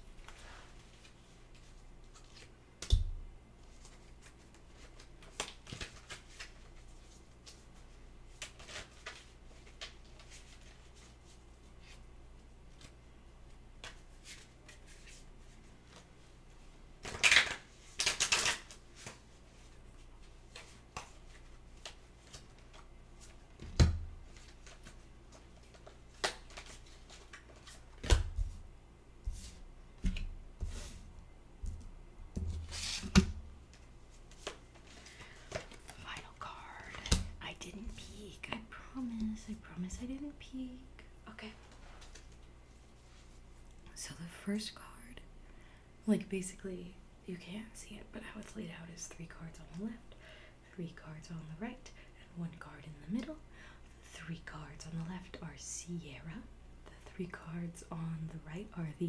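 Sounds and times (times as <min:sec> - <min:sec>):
cards shuffling and tapping: 0:17.0 - 0:19.2, 0:20.5 - 0:28.6, 0:31.7 - 0:38.0.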